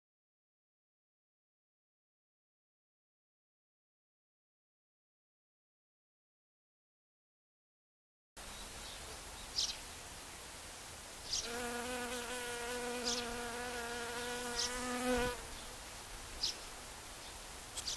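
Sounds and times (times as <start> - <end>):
outdoor hiss: 8.4 - 17.9
honeybee buzzing: 11.4 - 15.5.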